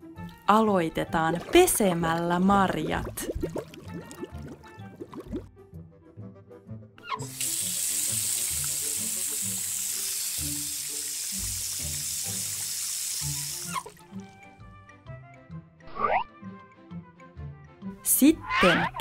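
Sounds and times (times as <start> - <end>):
background music: 0.0 - 19.0
tap water running: 0.3 - 5.4, 7.2 - 14.4.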